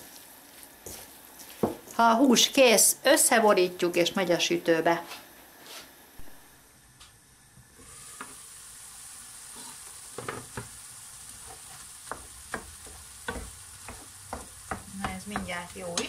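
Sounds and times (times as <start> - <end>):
meat sizzling in a frying pan: 0.0 - 4.5, 7.7 - 16.0
wooden spoon scraping a pan: 9.5 - 10.7, 11.4 - 16.0.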